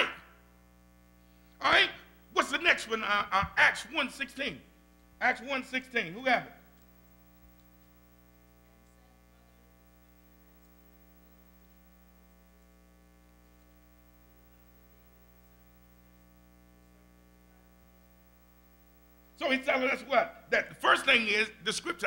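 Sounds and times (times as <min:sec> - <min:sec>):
electrical hum: 0:00.0 - 0:22.0.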